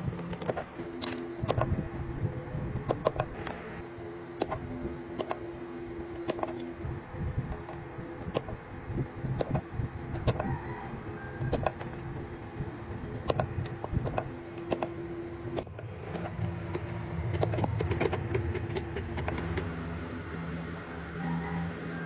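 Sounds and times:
machine hum: 0:00.0 - 0:22.0.

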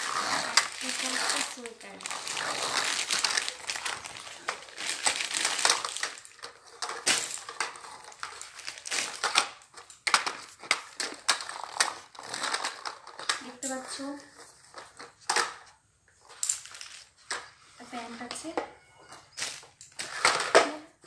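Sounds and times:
plastic packaging crinkling: 0:00.0 - 0:15.2.

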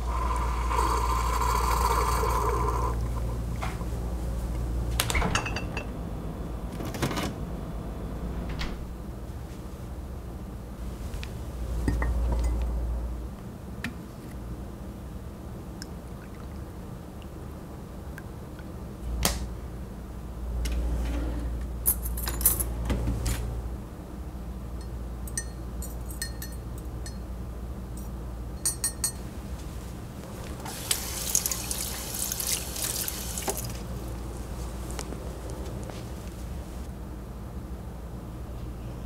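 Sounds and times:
faucet running into sink: 0:30.6 - 0:33.8.

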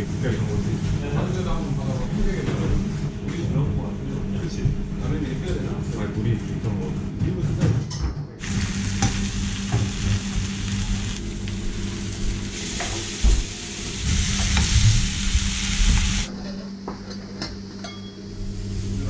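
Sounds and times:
steaks sizzling in a frying pan: 0:08.4 - 0:16.3.

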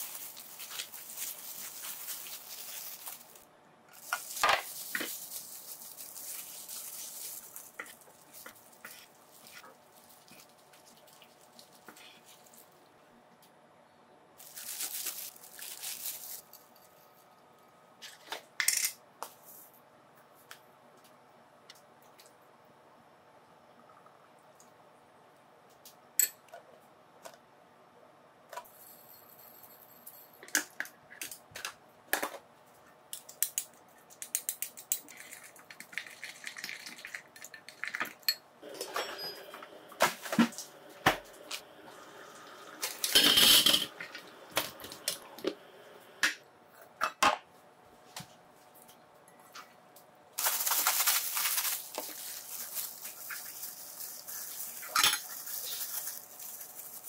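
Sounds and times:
utensils clattering: 0:37.8 - 0:41.7, 0:42.7 - 0:45.6, 0:54.3 - 0:56.0.

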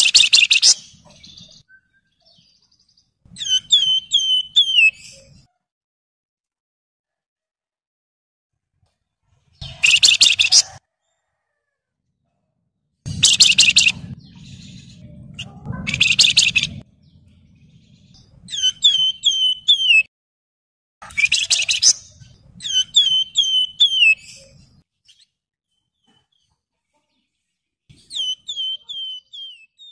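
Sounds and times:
songbird whistled notes: 0:03.4 - 0:05.2, 0:13.1 - 0:16.8, 0:18.5 - 0:20.1, 0:21.1 - 0:24.4, 0:28.0 - 0:29.9
songbird rattling calls: 0:13.1 - 0:14.8, 0:15.4 - 0:16.8.

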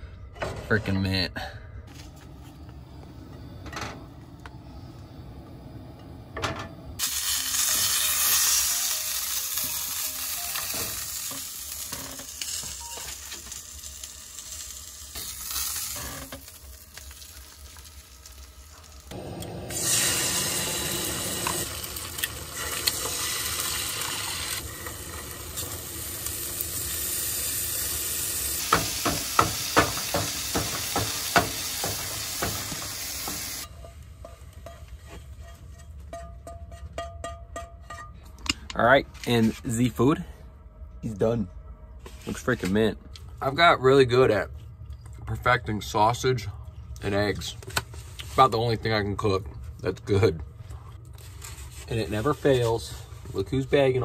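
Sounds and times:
food sizzling in a frying pan: 0:07.0 - 0:33.7
spatula scraping and tapping pan: 0:33.8 - 0:38.6.

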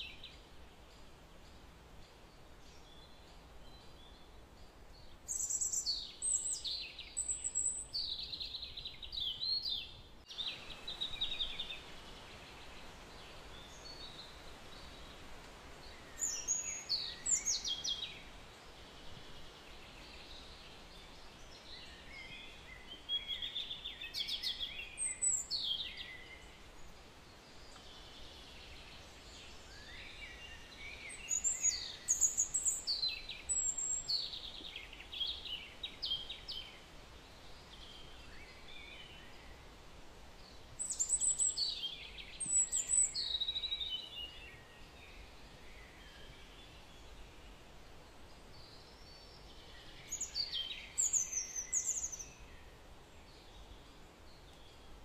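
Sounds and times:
steady background hiss: 0:00.0 - 0:55.0
small bird chirping: 0:02.8 - 0:11.8, 0:40.8 - 0:44.6.

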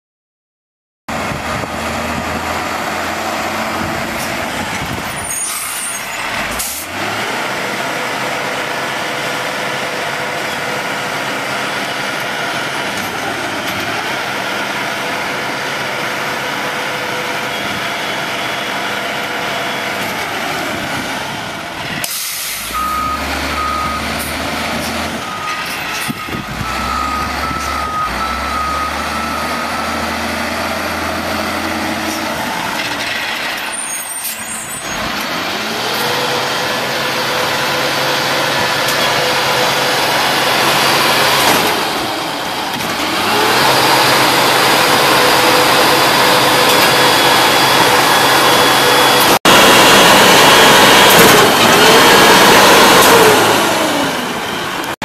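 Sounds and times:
truck diesel engine running: 0:06.1 - 0:33.9, 0:34.9 - 0:55.0
back-up alarm beeping: 0:26.6 - 0:30.0.

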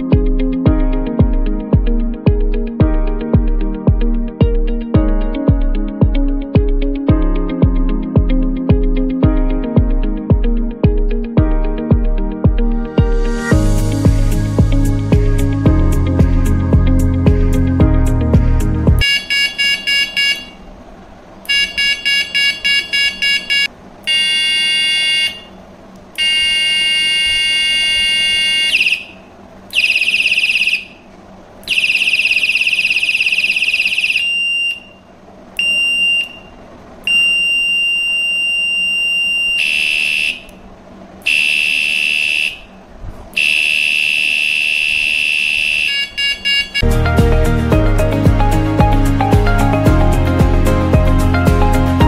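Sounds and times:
electronic bicycle horn beeps: 0:19.0 - 0:20.6, 0:21.5 - 0:25.6, 0:26.2 - 0:31.0, 0:31.6 - 0:40.6, 0:41.2 - 0:42.8, 0:43.4 - 0:47.0
high-pitched electronic tones: 0:26.2 - 0:31.0, 0:31.7 - 0:35.0, 0:35.6 - 0:36.5, 0:37.1 - 0:40.5, 0:43.4 - 0:46.9.

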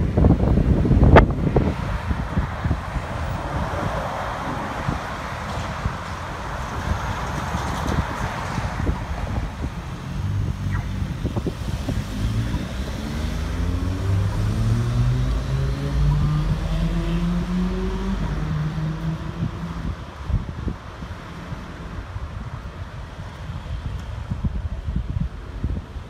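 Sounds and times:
cars accelerating: 0:01.1 - 0:20.2.

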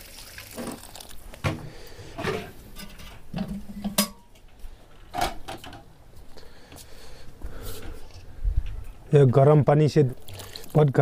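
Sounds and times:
metal cookware knocking: 0:03.4 - 0:04.2.

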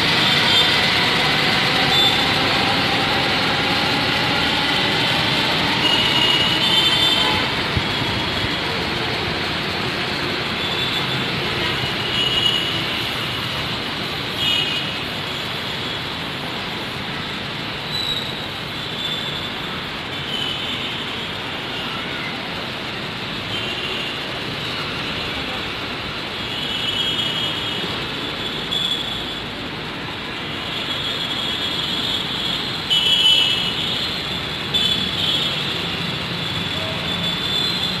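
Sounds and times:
train wheels squealing: 0:00.0 - 0:07.3, 0:17.8 - 0:19.6
train rumble: 0:00.0 - 0:12.2
metro train running: 0:00.0 - 0:38.0.

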